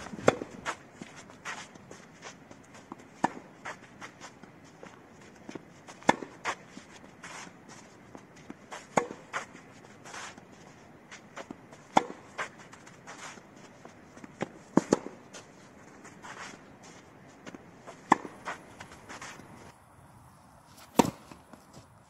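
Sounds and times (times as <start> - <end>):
racquet hitting tennis ball: 0.0 - 1.6, 2.8 - 3.9, 5.6 - 6.7, 8.3 - 9.6, 11.2 - 13.4, 14.2 - 15.3, 17.4 - 19.7, 20.8 - 21.6
shoes sliding on clay: 0.0 - 19.8, 20.7 - 22.0.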